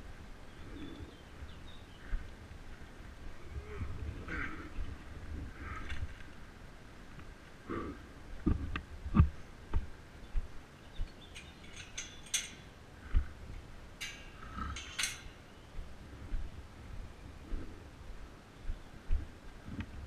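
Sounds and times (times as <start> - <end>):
metallic clinks and rattles: 11.2 - 12.8, 14.0 - 15.5.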